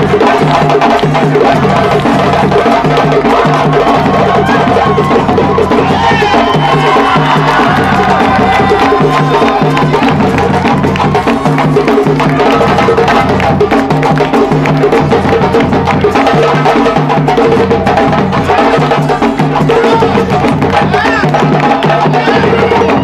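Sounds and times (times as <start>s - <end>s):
hand drums playing fast rhythm: 0.0s - 23.0s.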